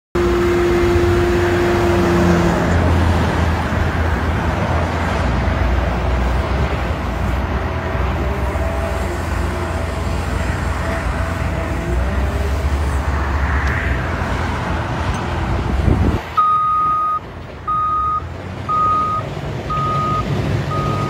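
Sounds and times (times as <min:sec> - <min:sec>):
diesel engine running: 0:00.2 - 0:21.0.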